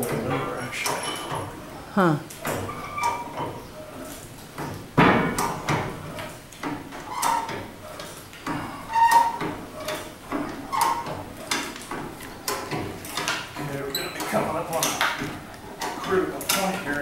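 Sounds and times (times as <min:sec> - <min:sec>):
chain hoist clanking: 0:08.8 - 0:17.0.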